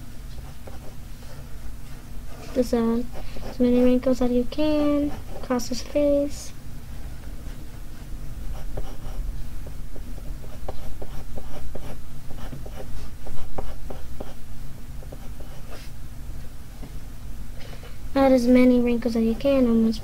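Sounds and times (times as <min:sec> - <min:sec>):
pencil scratching on paper: 0:00.4 - 0:01.5, 0:02.3 - 0:06.0, 0:08.4 - 0:14.4, 0:15.0 - 0:15.9.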